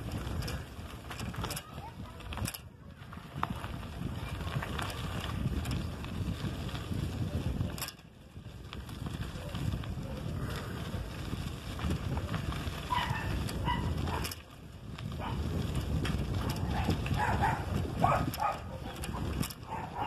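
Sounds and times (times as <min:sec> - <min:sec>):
footsteps crunching on dirt road: 0:00.0 - 0:20.0
wind buffeting microphone: 0:00.0 - 0:20.0
dog barking faintly: 0:12.8 - 0:14.4, 0:16.7 - 0:20.0.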